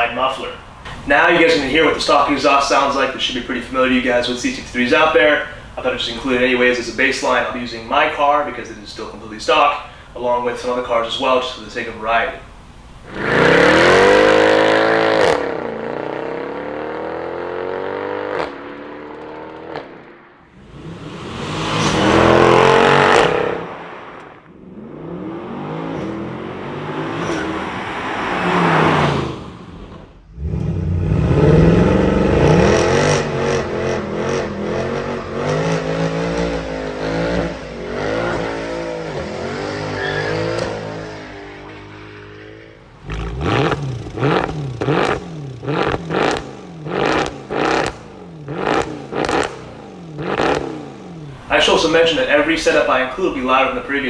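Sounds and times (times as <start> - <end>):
engine revving hard: 13.1 - 51.9
car passing by: 17.6 - 31.7
sharp throttle blips: 28.5 - 51.5.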